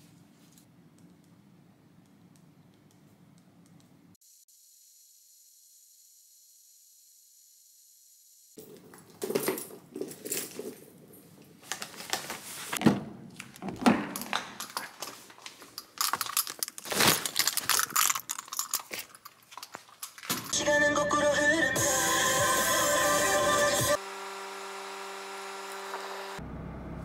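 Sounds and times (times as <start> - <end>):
jangling: 14.1 - 20.5.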